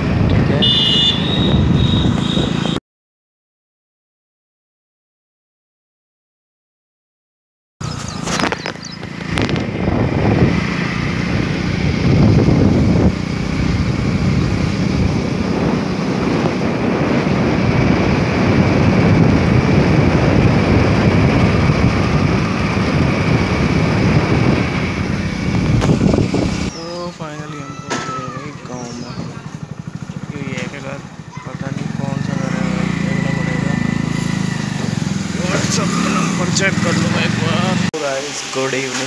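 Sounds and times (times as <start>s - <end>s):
motorcycle engine running: 0.0s - 2.8s, 7.8s - 27.5s, 28.2s - 37.9s
wind buffeting microphone: 7.9s - 27.3s, 28.5s - 35.8s.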